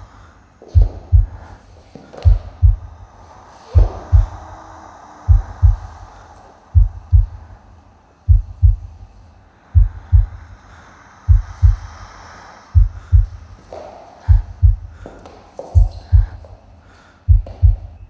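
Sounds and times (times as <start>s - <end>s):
faint airy swells: 0.0s - 18.0s
heartbeat thumps: 0.8s - 1.6s, 2.2s - 3.0s, 3.8s - 4.6s, 5.3s - 6.0s, 6.8s - 7.5s, 8.3s - 9.0s, 9.8s - 10.5s, 11.3s - 11.9s, 12.8s - 13.5s, 14.2s - 15.1s, 15.8s - 16.6s, 17.3s - 18.0s.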